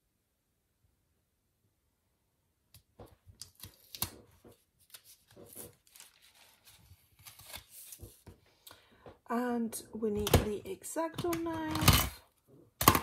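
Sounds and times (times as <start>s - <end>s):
paper stickers crinkling and rustling: 3.1s - 8.4s.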